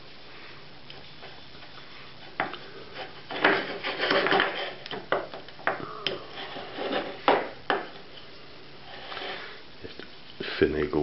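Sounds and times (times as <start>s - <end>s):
gritty scraping and rustling: 0.9s - 5.6s, 6.2s - 8.2s, 8.8s - 10.4s.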